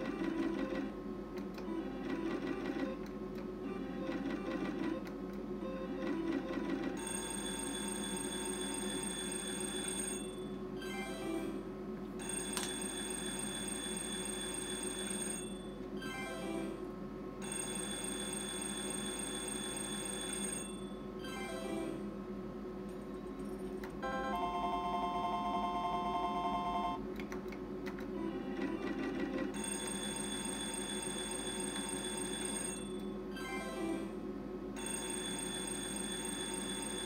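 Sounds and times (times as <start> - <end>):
slot machine bell-ringing win sound: 7.0 - 11.6.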